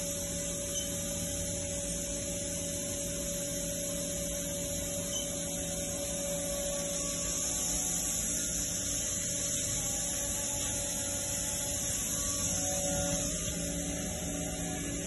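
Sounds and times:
constant mid-pitched tone: 0:00.0 - 0:15.0
idle machine hum and hiss: 0:00.0 - 0:15.0.

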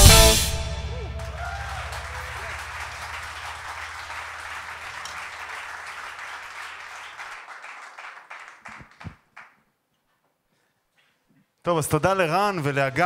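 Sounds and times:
low hum from stage: 0:00.0 - 0:06.8
audience applauding: 0:00.9 - 0:09.6, 0:12.6 - 0:13.0.

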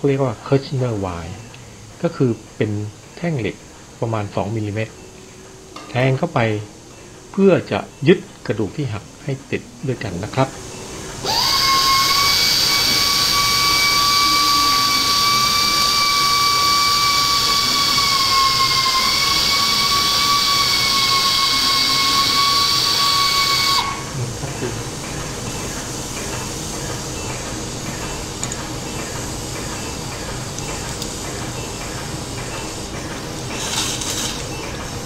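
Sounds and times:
surgical wire driver whining: 0:11.2 - 0:24.0.

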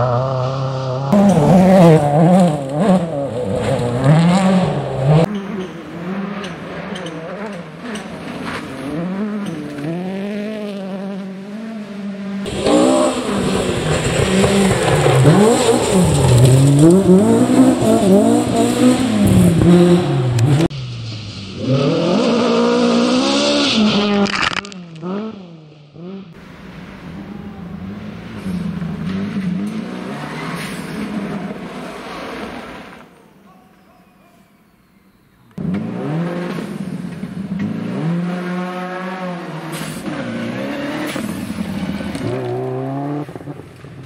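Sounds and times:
rally car engines revving: 0:00.0 - 0:33.2, 0:35.5 - 0:44.0
gravel spraying from tyres: 0:12.5 - 0:19.5, 0:28.0 - 0:33.2.

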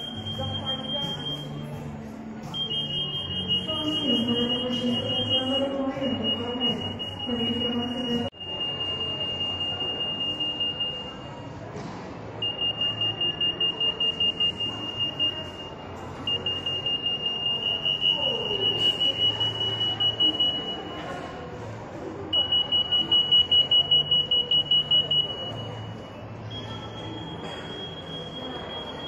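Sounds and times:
anti-theft gate alarm beeping: 0:00.0 - 0:01.8, 0:02.4 - 0:11.6, 0:12.4 - 0:21.2, 0:22.3 - 0:29.0.

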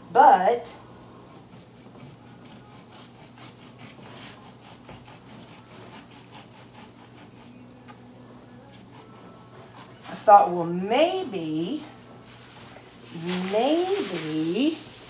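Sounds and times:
knife sawing through meat: 0:01.2 - 0:10.6.

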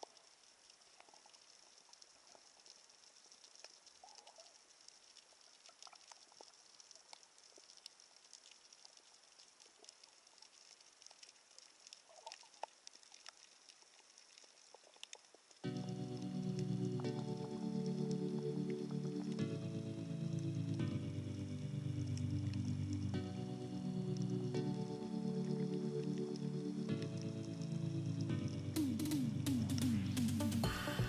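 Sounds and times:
small clicks and crackles: 0:00.0 - 0:19.6.

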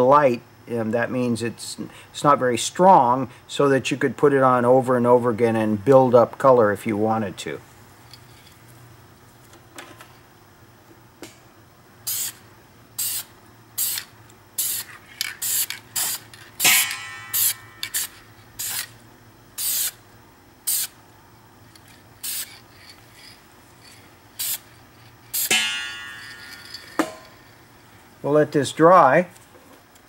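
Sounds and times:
aerosol can spraying: 0:12.1 - 0:12.4, 0:13.0 - 0:18.9, 0:19.6 - 0:20.0, 0:20.7 - 0:21.0, 0:22.2 - 0:22.6, 0:24.4 - 0:24.7, 0:25.3 - 0:25.5.

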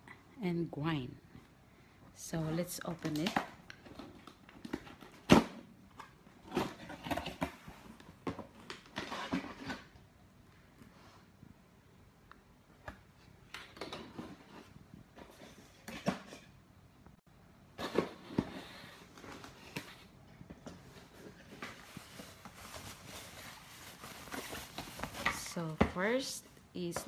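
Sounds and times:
plastic wrapping rustling: 0:17.8 - 0:26.3.

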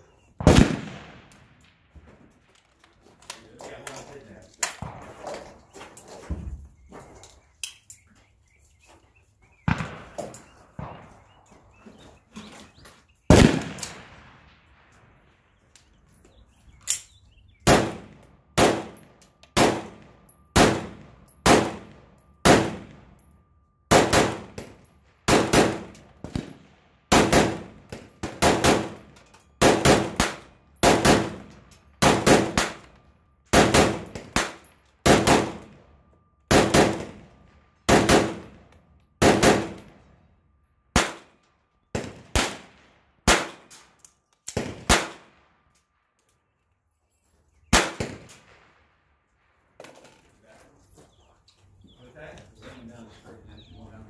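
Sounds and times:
rifle shots: 0:00.4 - 0:01.8, 0:09.7 - 0:11.3, 0:13.3 - 0:14.9, 0:17.6 - 0:23.2, 0:23.9 - 0:35.8, 0:36.5 - 0:40.0, 0:40.9 - 0:41.4, 0:42.0 - 0:43.9, 0:44.5 - 0:45.5, 0:47.7 - 0:48.8.

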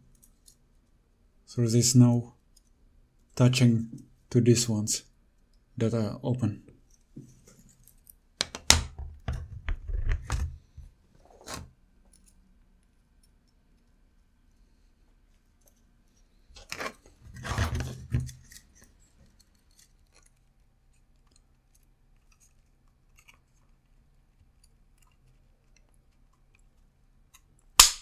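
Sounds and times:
plastic parts scraping and rustling: 0:09.3 - 0:12.4, 0:15.6 - 0:26.8.

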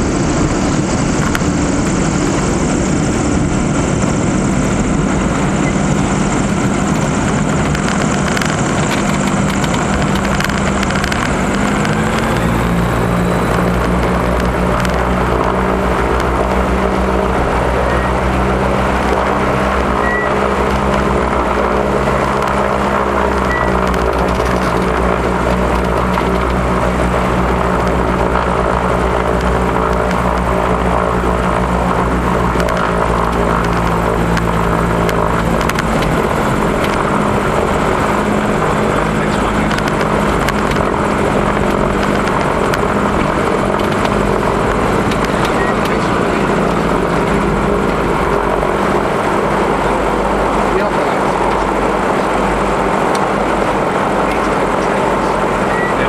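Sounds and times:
propeller engines running: 0:00.0 - 0:56.0
rushing noise in cabin: 0:00.0 - 0:56.0.

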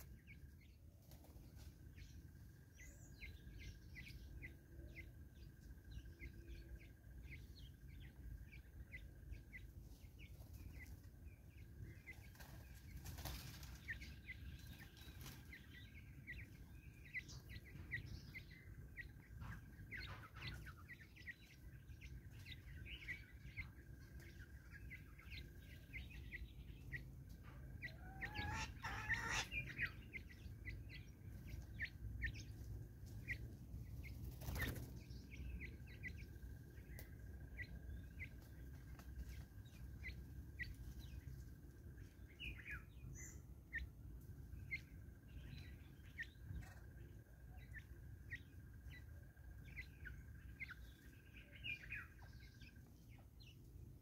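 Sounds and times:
birds pecking ticks: 0:00.0 - 0:54.0
wing flutter: 0:12.0 - 0:15.6, 0:32.6 - 0:35.3.

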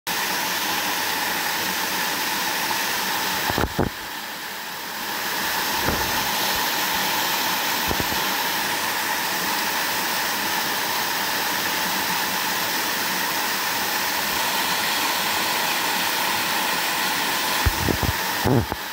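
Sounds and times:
water rushing over rocks: 0:05.0 - 0:18.9.

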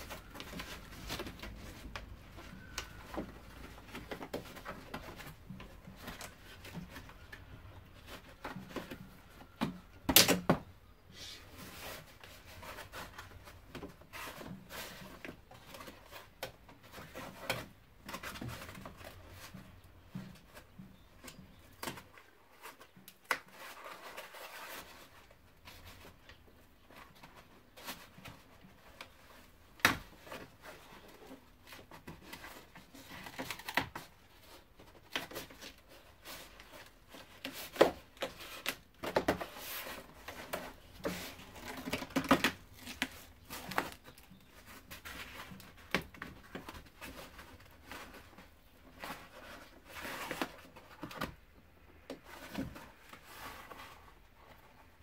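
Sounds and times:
membrane crinkling and tearing: 0:21.2 - 0:55.0.

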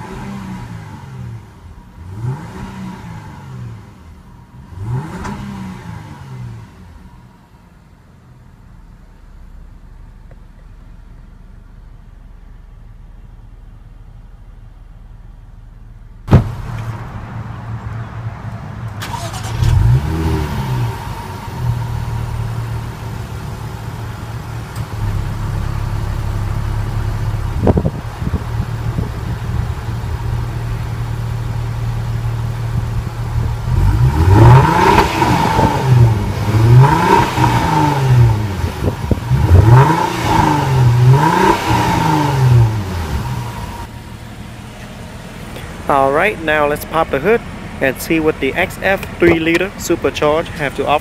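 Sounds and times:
engine revving hard: 0:00.0 - 0:04.0, 0:04.6 - 0:06.9, 0:19.0 - 0:23.1, 0:33.4 - 0:43.9
car engine idling: 0:00.0 - 0:51.0.

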